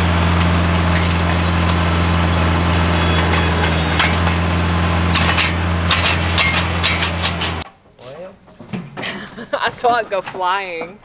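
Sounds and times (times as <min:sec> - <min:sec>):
tractor engine running under load: 0:00.0 - 0:07.6
auger boring into clay: 0:00.1 - 0:07.6.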